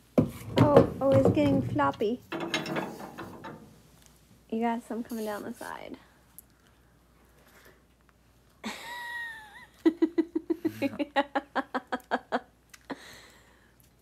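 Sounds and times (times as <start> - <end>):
laughter in quick bursts: 8.6 - 12.5.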